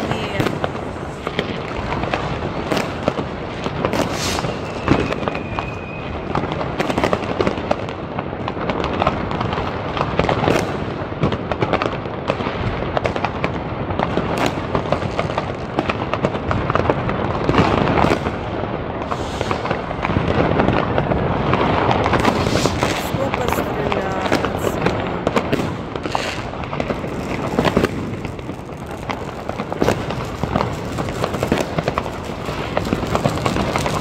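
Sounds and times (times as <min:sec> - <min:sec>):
fireworks bangs and crackling: 0:00.0 - 0:34.0
firework whistle: 0:04.0 - 0:06.4, 0:19.0 - 0:19.8, 0:22.2 - 0:23.0.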